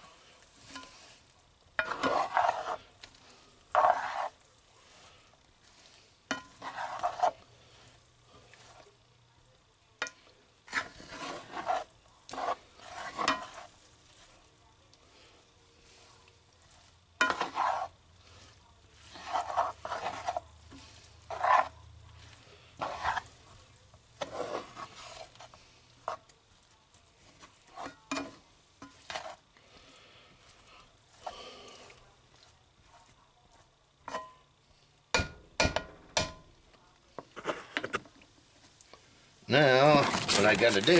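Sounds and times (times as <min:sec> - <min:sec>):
spatula scraping frying pan: 0:00.0 - 0:09.1, 0:10.0 - 0:26.4, 0:27.1 - 0:32.6, 0:34.0 - 0:34.4
faint sizzle of chicken cooking: 0:00.0 - 0:40.9
spatula knocking against pan: 0:35.1 - 0:36.4.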